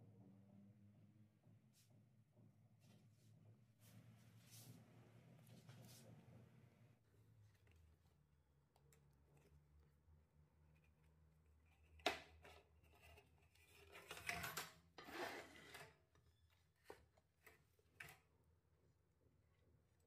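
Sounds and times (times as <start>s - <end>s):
scraping and rubbing: 11.6s - 16.1s.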